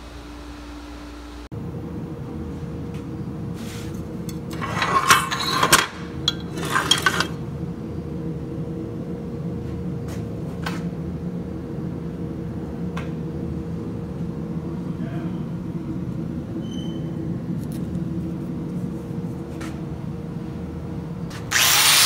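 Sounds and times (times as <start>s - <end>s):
steady background hum: 0.0s - 22.0s
metal clanking on workbench: 4.3s - 7.4s.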